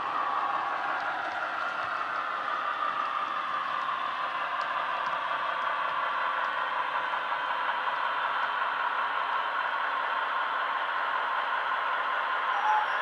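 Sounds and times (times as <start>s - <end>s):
diesel engine sound from small speaker: 0.0s - 13.0s.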